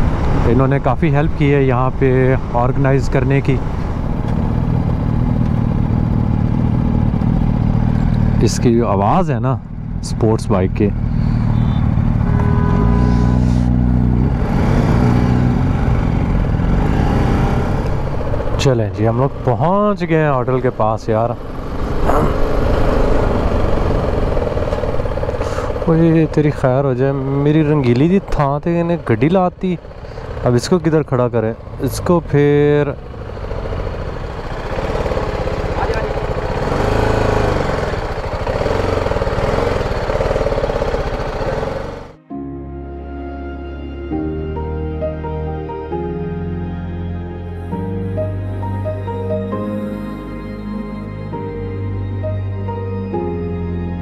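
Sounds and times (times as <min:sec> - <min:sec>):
motorcycle engine revving: 0:00.0 - 0:42.2.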